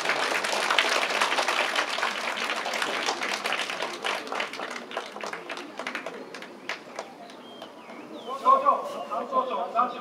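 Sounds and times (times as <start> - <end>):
children applauding: 0.0 - 7.4.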